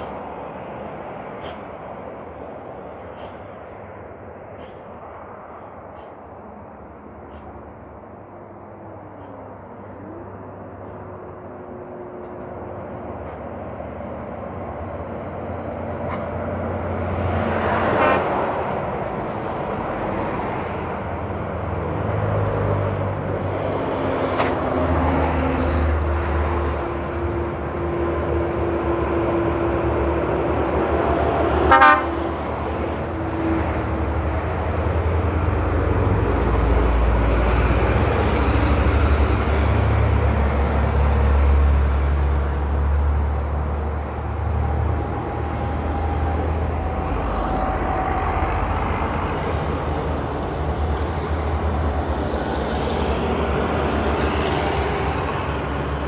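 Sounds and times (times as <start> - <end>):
heavy trucks passing: 0.0 - 56.0
vehicle horn tooting: 31.7 - 32.2.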